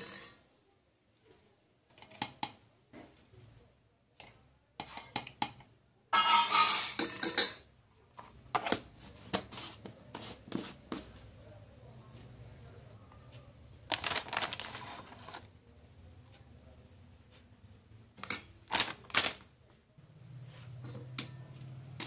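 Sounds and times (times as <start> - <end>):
spoon scraping and clinking: 6.2 - 7.6.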